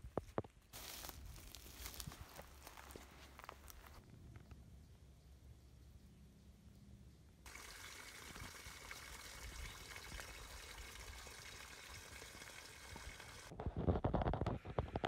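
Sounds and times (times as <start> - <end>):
stream of water splashing: 7.5 - 13.5.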